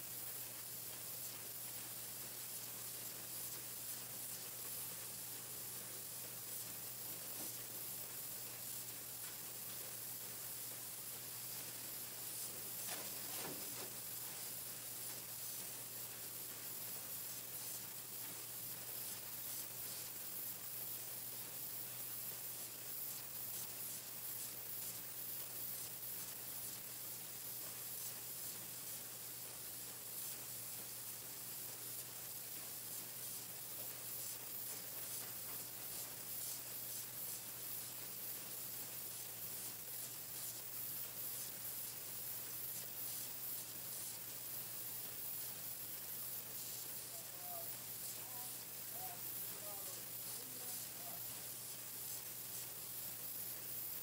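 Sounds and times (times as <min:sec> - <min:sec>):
painting machine hiss: 0:00.0 - 0:54.0.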